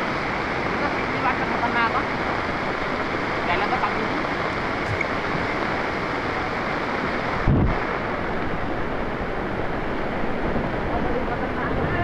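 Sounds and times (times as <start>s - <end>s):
floodwater rushing: 0.0s - 12.0s
low thump on microphone: 4.8s - 5.1s.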